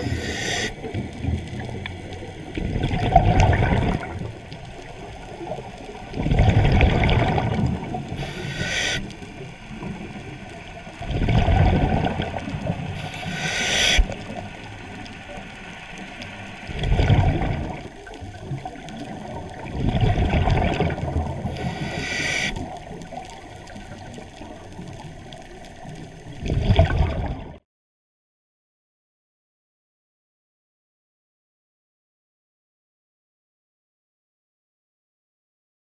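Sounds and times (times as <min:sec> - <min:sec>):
sharp regulator inhale hiss: 0:00.0 - 0:00.8, 0:08.1 - 0:09.2, 0:13.0 - 0:14.2, 0:21.5 - 0:22.7
bubbling exhale through regulator: 0:00.0 - 0:01.8, 0:02.6 - 0:04.4, 0:06.1 - 0:10.1, 0:11.0 - 0:14.5, 0:16.7 - 0:23.2, 0:26.4 - 0:27.4.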